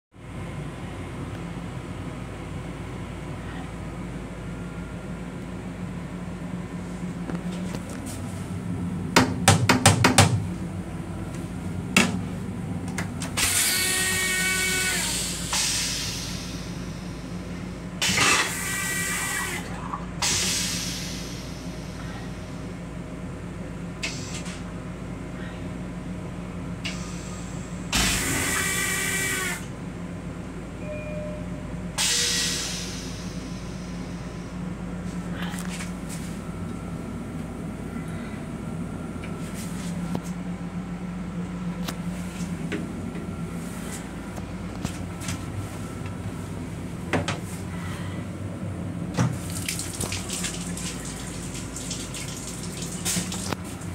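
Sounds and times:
railcar low hum: 0:00.1 - 0:53.9
toilet flushing hissing rush: 0:18.0 - 0:22.0, 0:26.9 - 0:29.6, 0:49.4 - 0:53.9
toilet flushing: 0:49.4 - 0:53.9.

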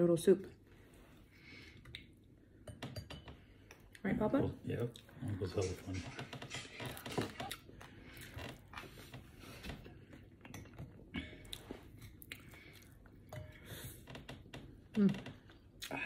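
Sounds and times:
person chewing food: 0:06.8 - 0:14.0.

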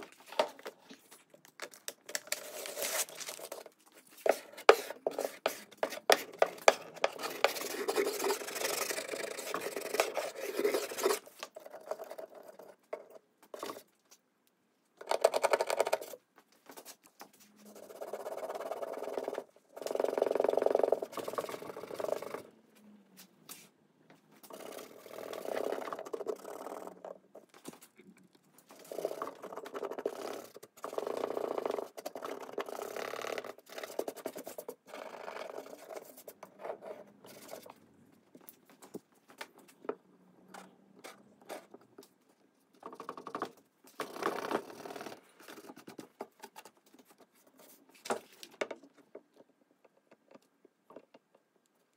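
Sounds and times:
hand scraping wooden top: 0:02.3 - 0:11.4.

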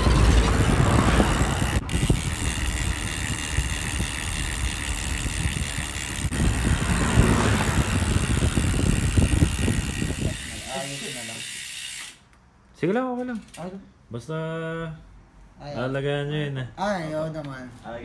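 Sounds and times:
street noise: 0:00.0 - 0:12.7
vehicle engine running: 0:06.0 - 0:10.2.

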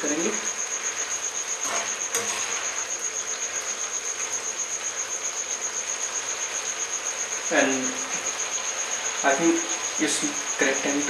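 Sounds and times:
cricket trilling: 0:00.0 - 0:11.0
curry simmering in a pan: 0:00.2 - 0:07.5, 0:08.1 - 0:10.6
spoon scraping a pan: 0:01.6 - 0:03.0.

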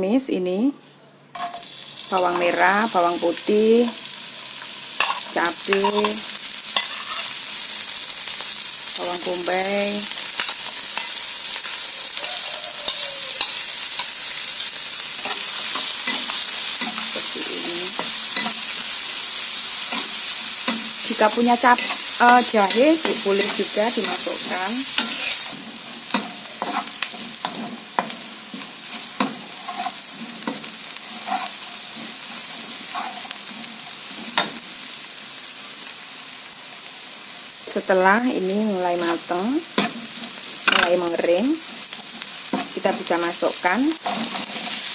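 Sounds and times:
vegetables sizzling in hot oil: 0:01.4 - 0:44.9
metal spatula scraping a wok: 0:19.6 - 0:34.5, 0:44.0 - 0:44.9.

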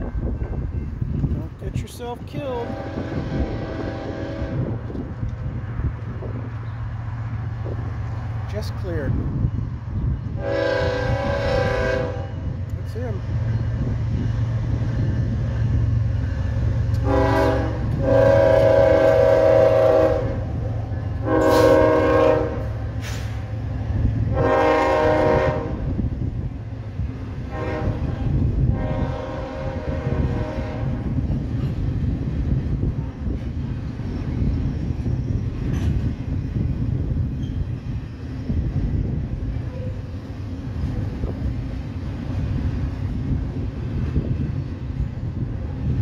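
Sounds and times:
freight train rumbling past: 0:00.0 - 0:46.0
locomotive air horn blasts: 0:02.6 - 0:04.8, 0:10.4 - 0:12.4, 0:17.0 - 0:20.5, 0:21.2 - 0:23.3, 0:24.3 - 0:25.9, 0:27.5 - 0:31.1.

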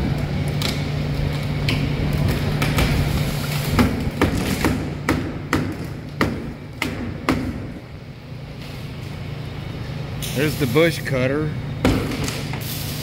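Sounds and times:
steady low hum: 0:00.0 - 0:13.0
hammer knocking on wooden crate: 0:03.8 - 0:07.7.

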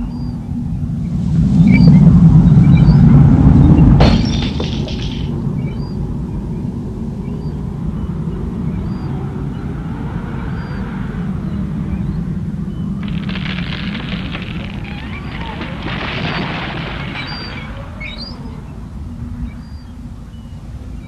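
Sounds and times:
sharp crack: 0:04.0 - 0:05.4, 0:13.0 - 0:18.5.

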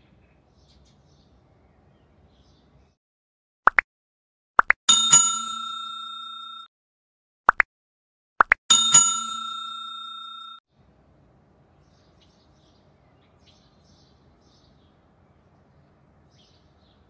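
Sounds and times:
faint bird chirps: 0:00.0 - 0:03.0
bell ding sound effect: 0:04.9 - 0:06.7, 0:08.7 - 0:10.6.

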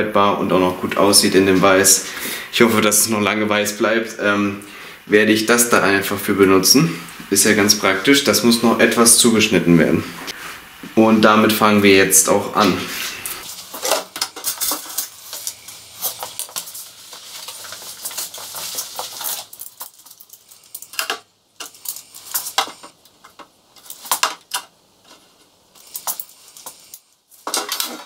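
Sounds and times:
folding ruler handled: 0:13.5 - 0:28.0.

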